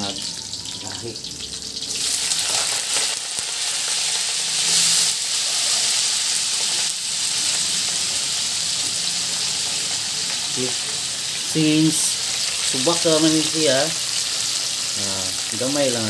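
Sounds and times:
vegetables sizzling in hot oil: 0.0s - 16.0s.

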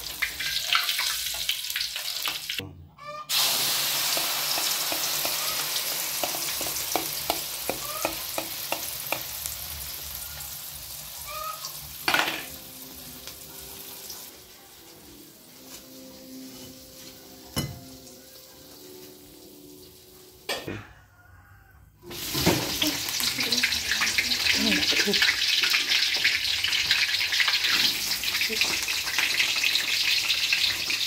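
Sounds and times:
egg frying in oil: 0.0s - 2.6s, 3.3s - 12.4s, 22.1s - 31.0s
hot oil sizzling and popping: 0.0s - 2.6s, 3.3s - 20.6s, 22.0s - 31.0s.

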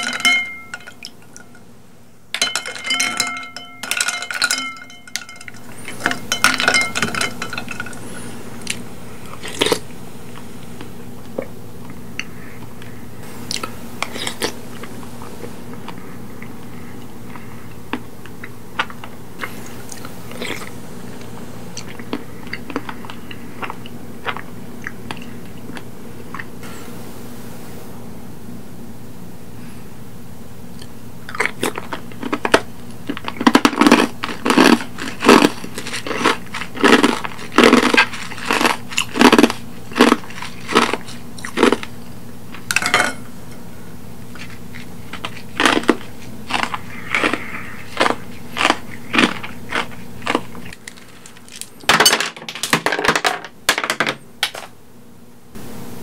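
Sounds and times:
close-miked chewing: 13.3s - 26.6s, 30.8s - 42.6s, 44.3s - 51.4s
sharp clicks and crunches: 44.4s - 53.0s.

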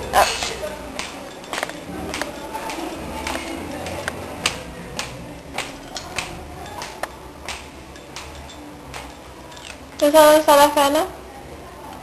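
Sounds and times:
footsteps on hard floor: 0.2s - 9.1s.

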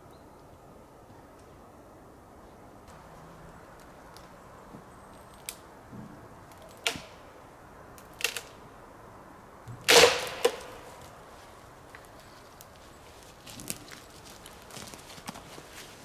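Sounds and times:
twigs crackling: 2.9s - 5.8s, 6.4s - 7.3s, 7.9s - 8.6s, 9.9s - 16.0s
dry branches snapping: 3.6s - 4.4s, 5.1s - 5.7s, 6.4s - 7.2s, 7.9s - 8.6s, 9.8s - 11.2s, 11.9s - 16.0s.

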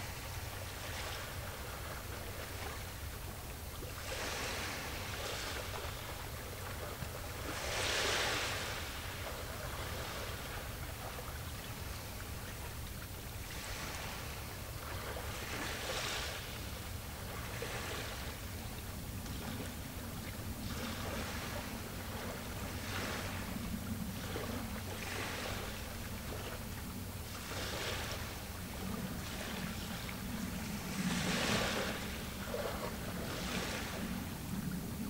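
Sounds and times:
small waves washing on shore: 0.0s - 35.0s
steady low rumble: 16.4s - 35.0s.

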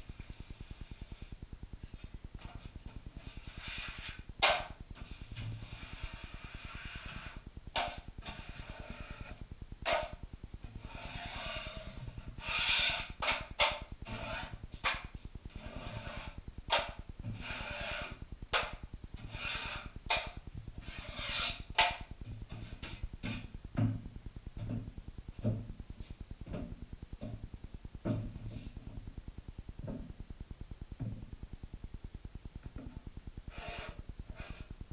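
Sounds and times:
steady low hum: 0.0s - 34.9s
drywall knife scraping compound: 2.4s - 23.5s, 33.5s - 34.7s.

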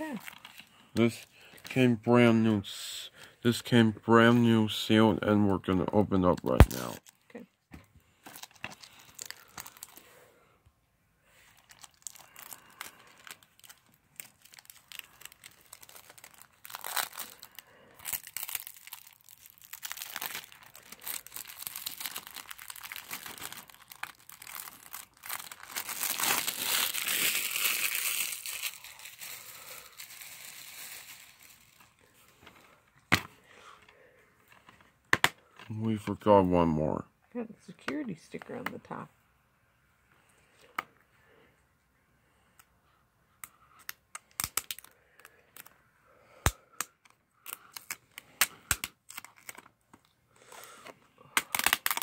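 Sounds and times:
plastic wrap crinkling: 0.0s - 1.2s, 6.4s - 7.4s, 8.2s - 10.2s, 11.5s - 32.1s, 47.4s - 49.8s, 51.4s - 52.0s.

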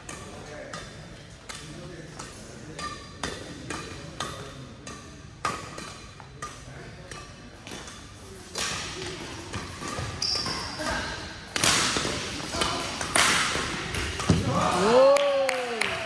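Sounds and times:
rackets hitting shuttlecock: 0.0s - 15.0s
shoe squeak on court floor: 10.0s - 10.8s.

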